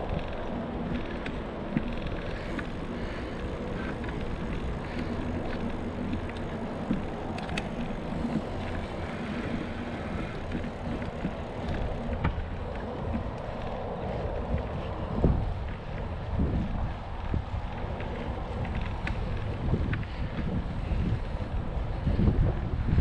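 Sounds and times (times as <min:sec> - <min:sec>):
bicycle tyre noise on concrete: 0:00.0 - 0:23.0
wind buffeting the microphone: 0:00.0 - 0:23.0.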